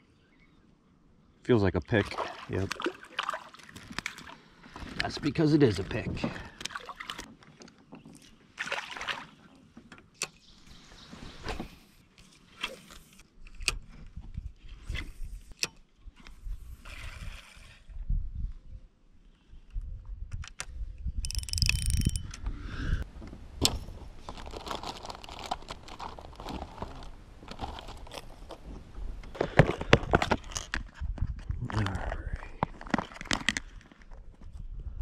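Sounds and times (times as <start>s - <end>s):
fishing gear clicking and clattering: 21.2s - 22.4s, 29.2s - 31.8s
rustling: 23.3s - 28.7s.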